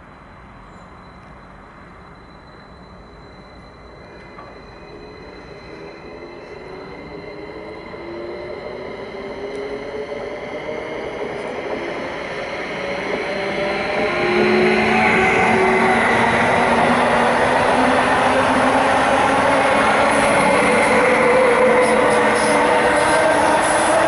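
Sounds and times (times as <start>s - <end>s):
electric train whine: 0.0s - 24.0s
train wheels on rails: 0.0s - 24.0s.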